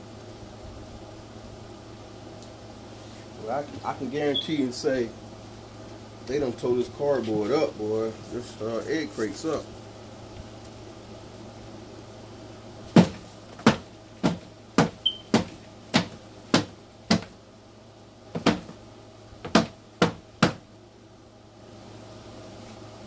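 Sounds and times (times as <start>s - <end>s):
cardboard knocking on container: 12.9s - 17.3s, 18.4s - 18.8s, 19.4s - 20.6s.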